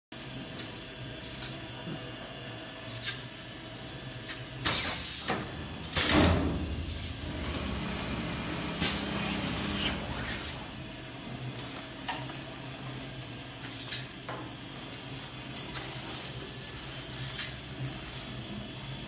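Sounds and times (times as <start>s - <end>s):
low motor hum: 5.4s - 11.4s.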